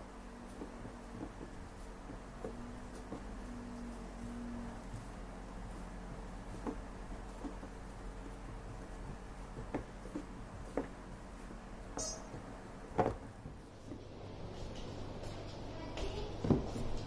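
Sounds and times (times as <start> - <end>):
dough squishing: 0.0 - 17.0.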